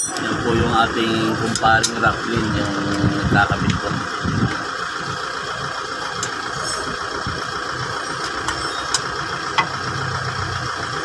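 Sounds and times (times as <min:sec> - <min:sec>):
steady mechanical hum: 0:00.0 - 0:11.0.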